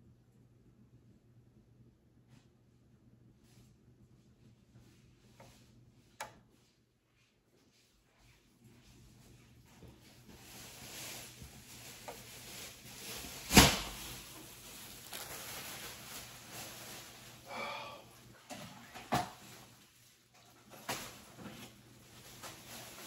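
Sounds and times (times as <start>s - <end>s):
soft handling noise: 4.5s - 17.5s.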